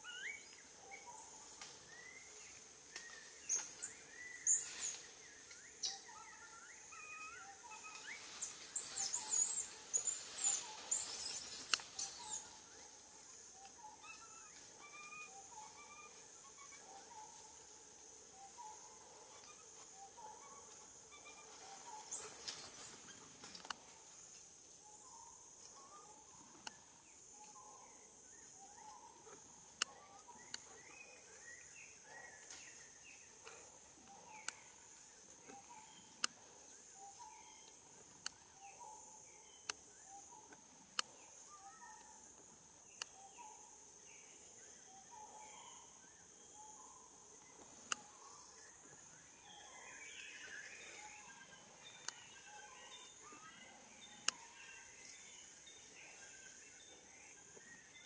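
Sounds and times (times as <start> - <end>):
sharp clicks: 11.6 - 12.0.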